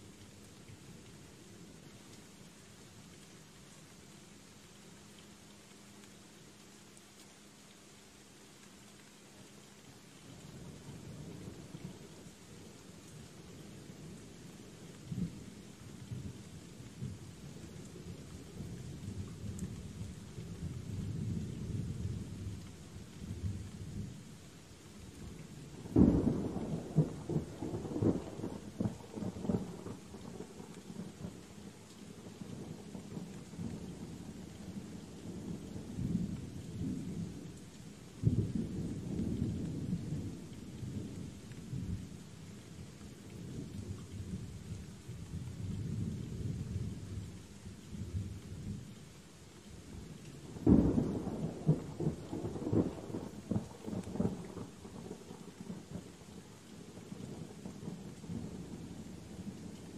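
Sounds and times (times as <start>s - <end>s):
steady rain: 0.0s - 59.9s
rolling thunder: 50.4s - 55.8s.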